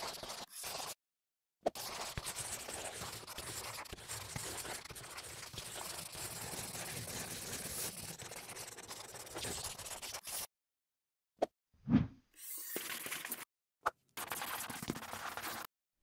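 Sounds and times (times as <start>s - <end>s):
pen scratching on paper: 0.0s - 1.0s, 1.7s - 10.5s, 12.4s - 13.4s, 14.2s - 15.7s.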